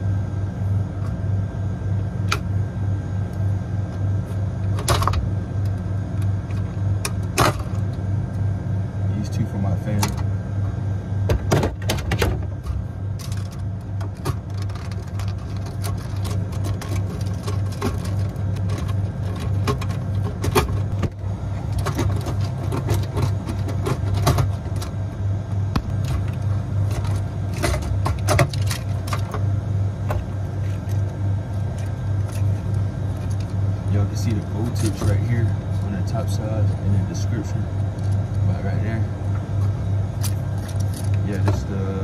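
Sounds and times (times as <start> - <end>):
refrigeration machinery hum: 0.0 - 42.0
clicks and small rattles: 12.6 - 25.0, 25.8 - 29.4, 40.2 - 41.6.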